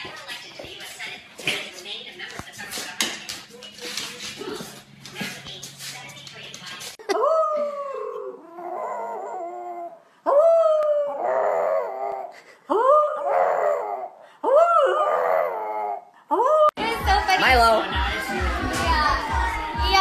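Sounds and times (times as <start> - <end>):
dog howling: 7.2 - 12.3, 12.9 - 16.1.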